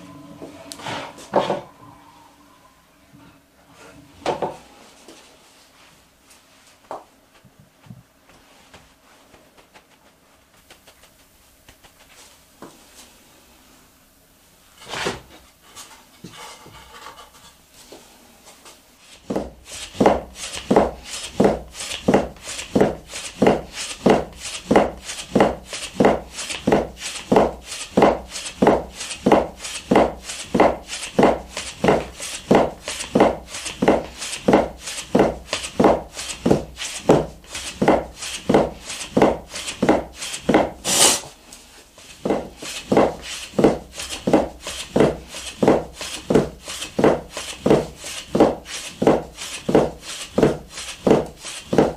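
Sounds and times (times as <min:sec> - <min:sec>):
knife chopping dough on wooden board: 0:19.2 - 0:40.8, 0:42.1 - 0:51.9.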